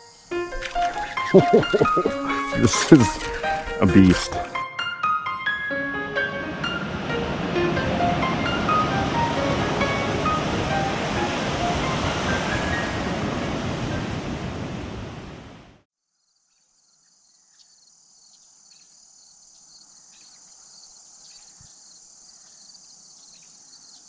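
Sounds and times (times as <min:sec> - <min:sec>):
high-pitched insect chorus: 0:00.0 - 0:04.6, 0:16.2 - 0:24.0.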